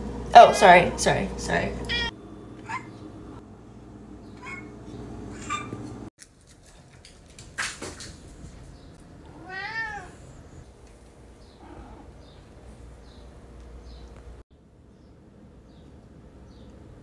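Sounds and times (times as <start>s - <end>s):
cats meowing: 1.9s - 2.9s, 9.2s - 10.6s, 11.5s - 12.4s.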